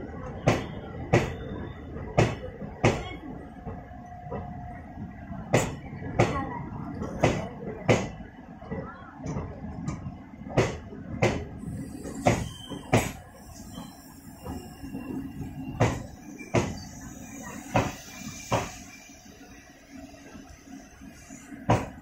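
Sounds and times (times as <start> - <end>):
train wheels knocking on rail joint: 10.6 - 13.2, 15.7 - 16.8, 17.6 - 18.9, 21.6 - 22.0.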